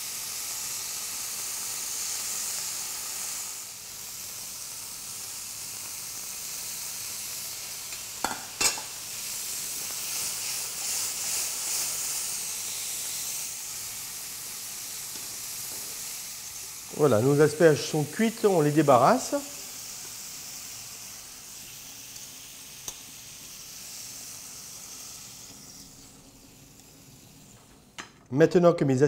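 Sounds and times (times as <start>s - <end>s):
vegetables sizzling in frying pan: 0.0s - 28.1s
utensil knocking on pan: 8.2s - 8.9s.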